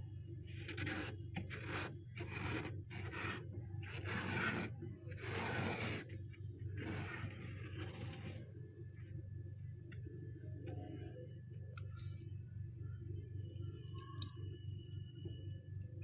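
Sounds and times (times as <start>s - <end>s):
hand scraping freezer frost: 0.4s - 8.6s.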